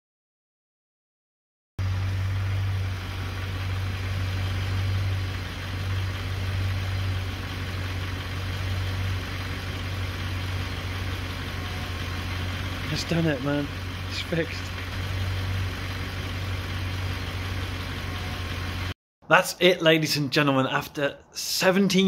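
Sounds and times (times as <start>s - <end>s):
car engine idling: 1.8s - 19.0s.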